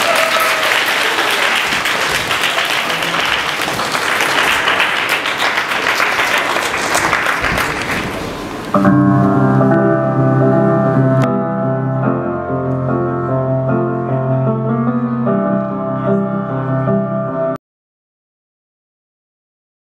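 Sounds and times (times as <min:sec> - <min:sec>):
audience applauding: 0:00.0 - 0:08.7
piano music with sustained chords: 0:08.6 - 0:17.6.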